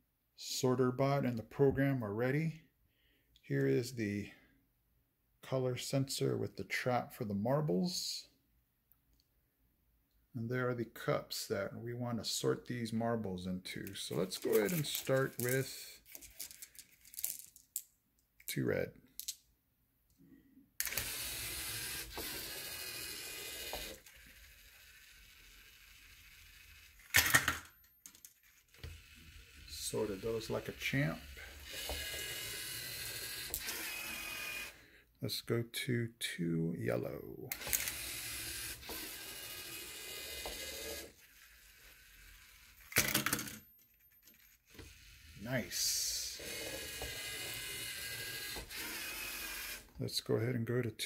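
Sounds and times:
robot motors and gears whirring: 0:31.6 - 0:34.7, 0:37.6 - 0:42.8, 0:44.7 - 0:49.8.

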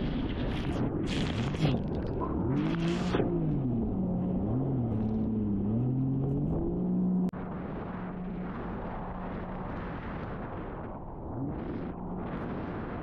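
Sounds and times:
rush of wind and water: 0:00.0 - 0:03.4, 0:07.3 - 0:13.0.

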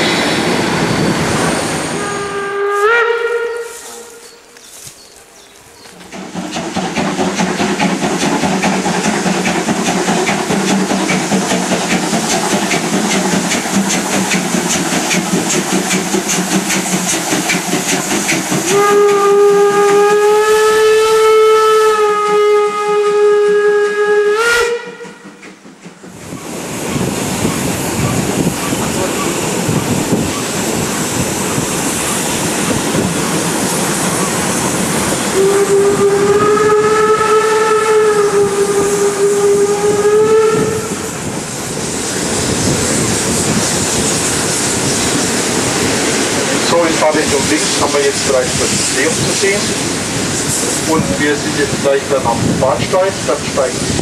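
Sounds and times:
steam locomotive hissing: 0:00.0 - 0:54.0
train running noise: 0:00.0 - 0:54.0
steam whistle chord: 0:01.9 - 0:04.4, 0:18.6 - 0:25.4, 0:35.3 - 0:41.1.

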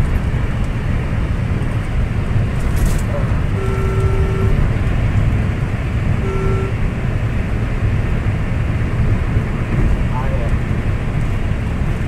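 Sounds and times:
car engine running: 0:00.0 - 0:12.0
road and wind noise: 0:00.0 - 0:12.0
short electronic beep: 0:03.6 - 0:04.6, 0:06.2 - 0:06.8.

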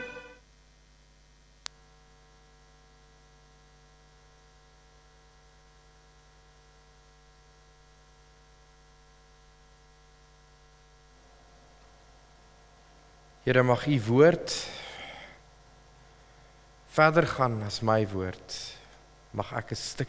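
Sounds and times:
music: 0:00.0 - 0:00.4
electrical mains hum: 0:00.0 - 0:20.0.

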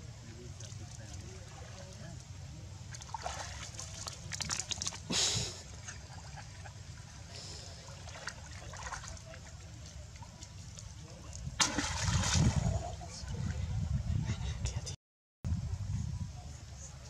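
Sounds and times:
water splashing and dripping: 0:02.9 - 0:05.1, 0:07.9 - 0:12.8.

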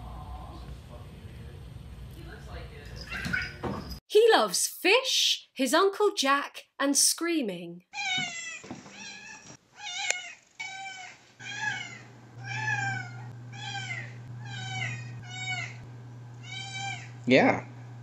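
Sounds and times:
cat meowing: 0:07.9 - 0:15.8, 0:16.4 - 0:17.2
steady low hum: 0:11.5 - 0:18.0.

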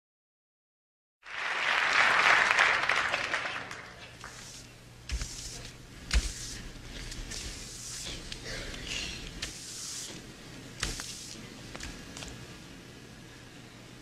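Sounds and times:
audience applause: 0:01.2 - 0:04.2.

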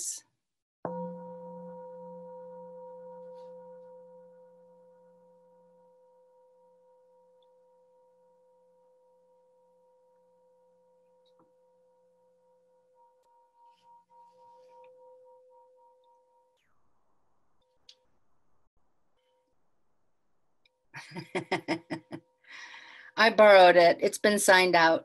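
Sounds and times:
metal singing bowl ringing: 0:00.9 - 0:16.6.

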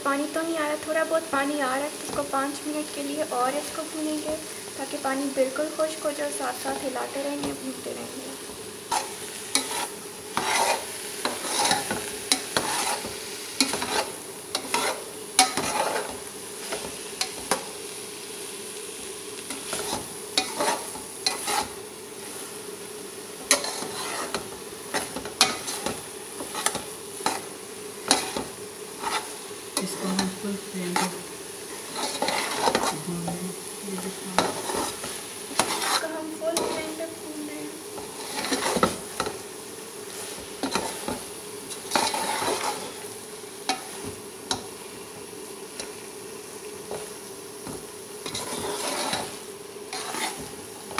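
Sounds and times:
frying sizzle: 0:00.0 - 0:50.9
steel spoon scraping metal pot: 0:08.9 - 0:16.1, 0:23.5 - 0:24.4, 0:32.0 - 0:33.0, 0:34.5 - 0:37.0, 0:41.9 - 0:42.9, 0:48.2 - 0:49.3, 0:49.9 - 0:50.4.

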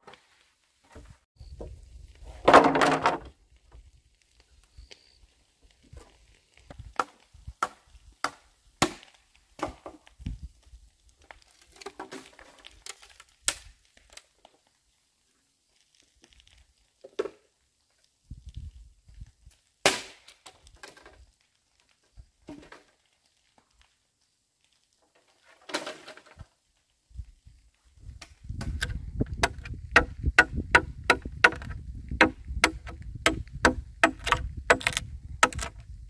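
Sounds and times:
bamboo being chopped: 0:28.6 - 0:35.8.

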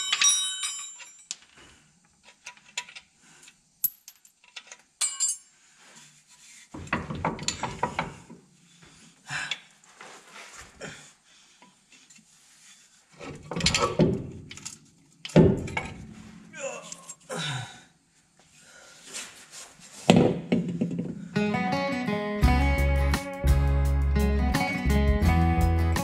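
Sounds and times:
metal tools clinking: 0:00.0 - 0:01.6, 0:03.8 - 0:05.5
metal scraping and knocking: 0:06.6 - 0:08.3, 0:13.2 - 0:16.5.

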